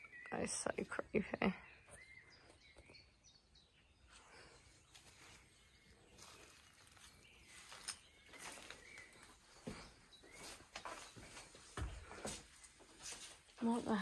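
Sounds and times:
faint high chirp: 1.6 - 11.4
faint clicks and crunches: 6.1 - 9.4.

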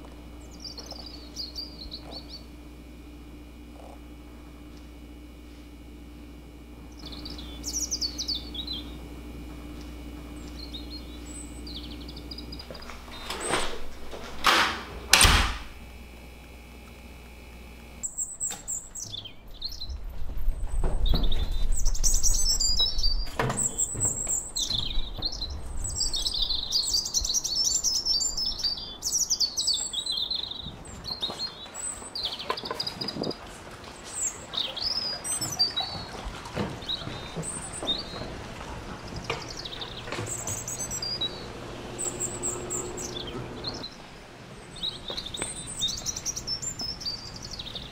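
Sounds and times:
birds chirping: 0.0 - 47.9
low rumble: 38.4 - 44.2.

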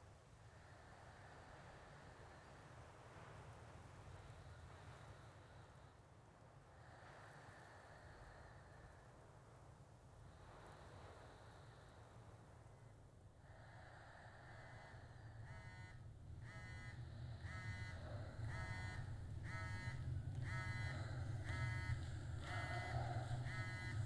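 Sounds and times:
low rumbling drone: 16.1 - 24.0.

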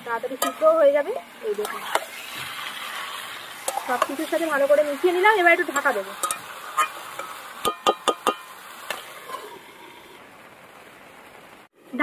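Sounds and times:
faint sizzle of frying: 0.0 - 12.0.

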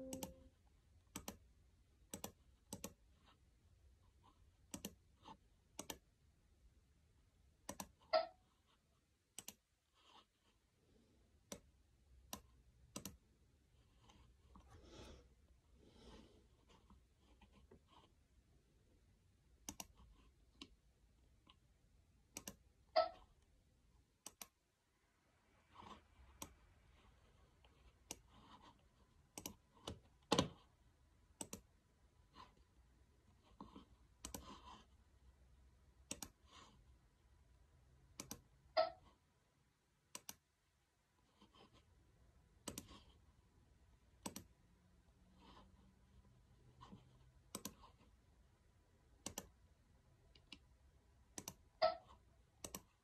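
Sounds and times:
computer mouse clicking: 0.0 - 0.4, 1.1 - 1.4, 2.1 - 3.0, 4.6 - 6.1, 7.6 - 8.0, 9.3 - 9.6, 11.4 - 11.7, 12.3 - 13.2, 19.6 - 20.7, 22.3 - 22.6, 24.2 - 24.6, 26.4 - 26.6, 28.0 - 28.3, 29.3 - 30.6, 31.4 - 31.7, 34.2 - 34.7, 36.0 - 36.5, 38.1 - 38.5, 40.1 - 40.4, 42.6 - 43.0, 44.2 - 44.6, 47.5 - 48.0, 49.2 - 49.6, 51.3 - 51.6, 52.6 - 53.0
laptop keys clicking: 1.1 - 1.4, 2.1 - 3.0, 4.7 - 5.0, 5.7 - 6.0, 12.3 - 13.2, 22.3 - 22.6, 29.3 - 30.6, 31.4 - 31.7, 34.2 - 34.4, 36.0 - 36.4, 38.1 - 38.5, 42.6 - 42.9, 44.2 - 44.5, 47.5 - 47.8, 49.2 - 49.5, 51.3 - 51.6, 52.6 - 53.0.

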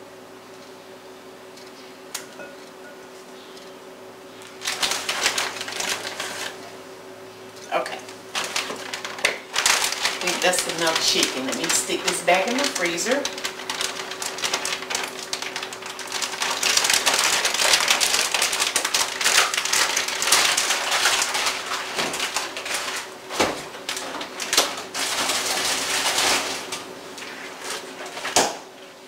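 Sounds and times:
plastic bag crinkling: 4.4 - 6.7, 7.7 - 28.4.

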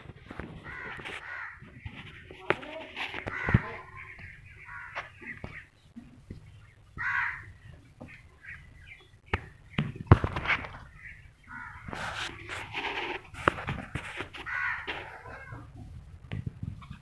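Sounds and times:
harsh animal calls: 0.6 - 5.7, 7.0 - 7.6, 10.9 - 13.2, 14.0 - 15.7.

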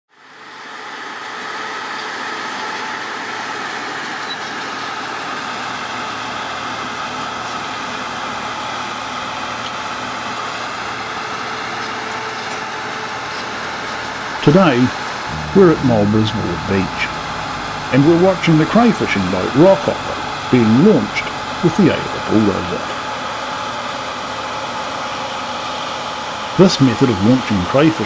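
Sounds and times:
bulldozer diesel engine running: 14.4 - 23.5.

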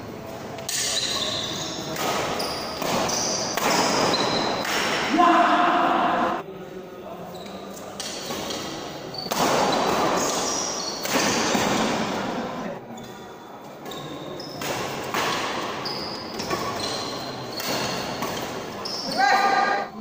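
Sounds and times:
shoes squeaking on court: 0.7 - 4.6, 7.3 - 11.1, 12.9 - 19.8
rackets hitting shuttlecock: 1.8 - 5.1, 8.0 - 12.0, 14.6 - 18.9.

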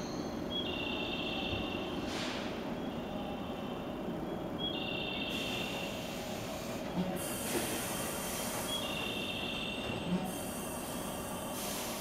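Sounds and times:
electric train humming: 0.0 - 12.0
air hiss: 5.3 - 8.8, 10.3 - 12.0.

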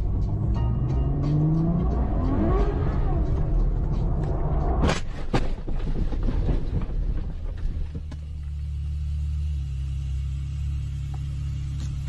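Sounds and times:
low car rumble: 0.0 - 12.0
knocks and rattles: 4.8 - 8.4.

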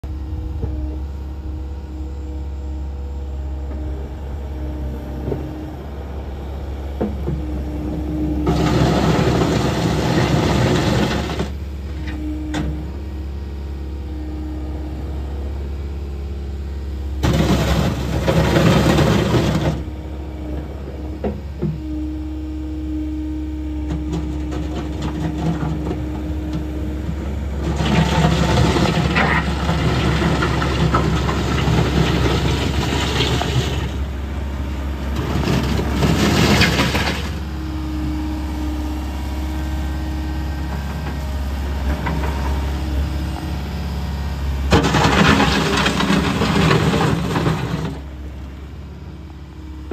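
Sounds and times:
excavator diesel engine running: 0.0 - 49.9
bucket scraping gravel: 7.1 - 11.6, 17.2 - 20.0, 24.0 - 37.6, 44.6 - 48.2.

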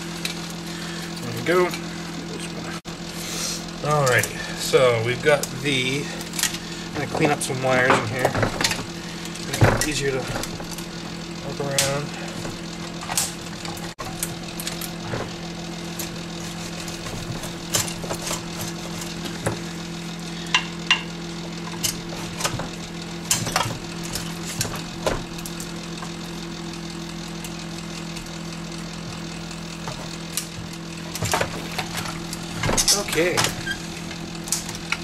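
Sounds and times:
steady hum: 0.0 - 35.0
wires rattling: 5.1 - 35.0
wire cutters snipping: 5.3 - 26.4, 29.8 - 35.0.

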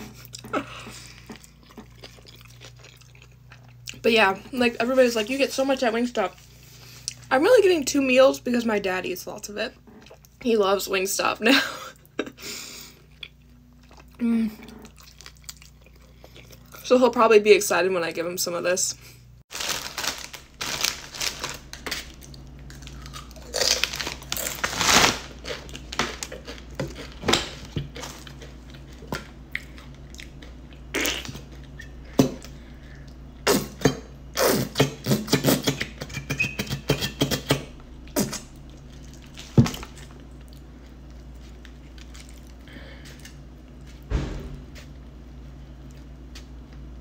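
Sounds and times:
low steady hum: 0.0 - 47.0
plastic bag crinkling: 19.5 - 28.5
chips crunching: 19.5 - 31.7, 38.2 - 44.0.

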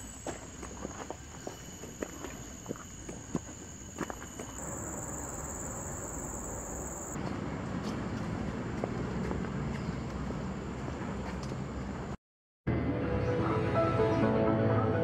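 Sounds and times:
insects droning: 0.0 - 7.2
faint footsteps: 0.2 - 4.9, 7.1 - 11.8
road traffic rumble: 4.6 - 12.2.

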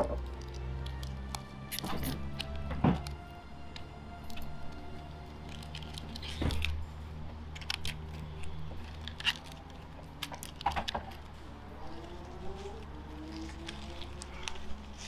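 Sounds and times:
foil and plastic trays crinkling: 4.2 - 15.0.

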